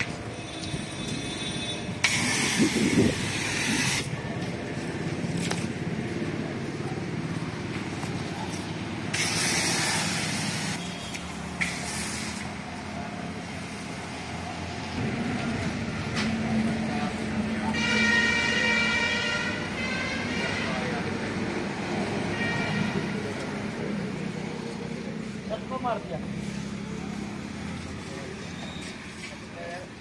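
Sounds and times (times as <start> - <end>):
pressure washer spraying: 2.0 - 4.1, 9.1 - 10.8, 11.6 - 12.5.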